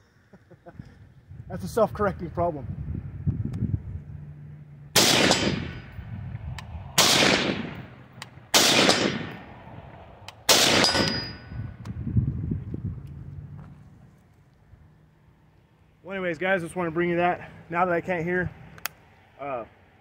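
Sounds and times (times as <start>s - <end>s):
rifle shots: 4.9s - 6.0s, 6.6s - 9.7s, 10.4s - 11.4s.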